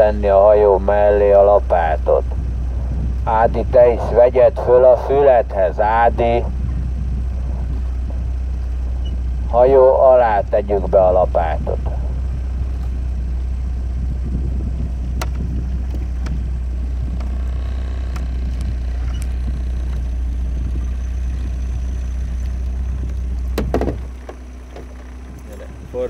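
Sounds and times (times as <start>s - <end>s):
motorboat engine humming: 0.0s - 26.0s.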